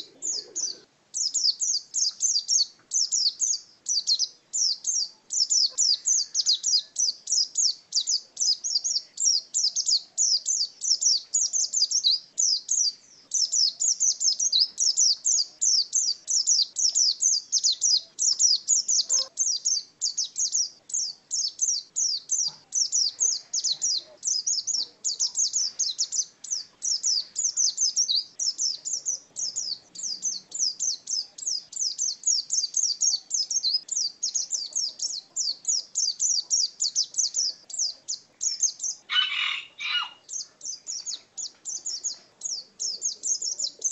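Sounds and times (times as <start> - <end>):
bird chirping song: 0.0 - 43.9.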